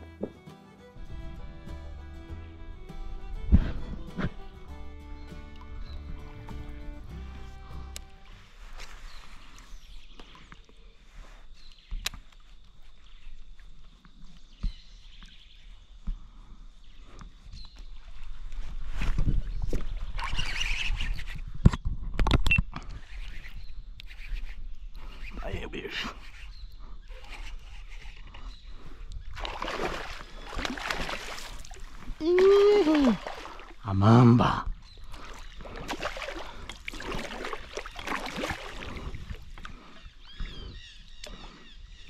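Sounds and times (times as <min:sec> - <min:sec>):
faint bird chirps: 0:22.9 - 0:29.4, 0:39.7 - 0:42.0
fish thrashing and splashing: 0:29.3 - 0:33.8, 0:35.0 - 0:39.9.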